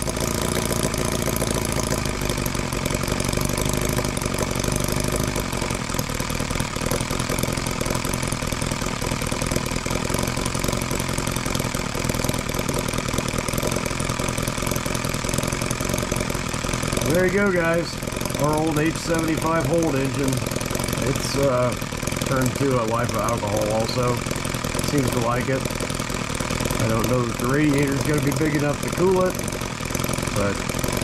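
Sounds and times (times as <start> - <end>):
model engine idling: 0.0 - 31.0.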